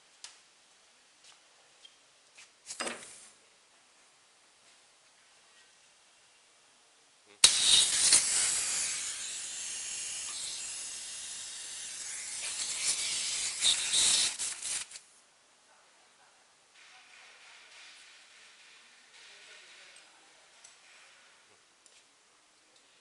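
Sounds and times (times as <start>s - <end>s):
compressed air hissing: 7.4s - 15.0s.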